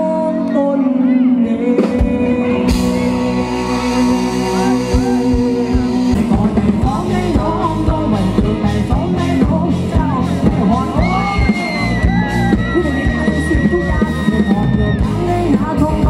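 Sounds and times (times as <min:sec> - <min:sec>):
electric guitar chords: 0:00.0 - 0:16.0
man singing: 0:00.0 - 0:16.0
drum beat: 0:04.9 - 0:15.9.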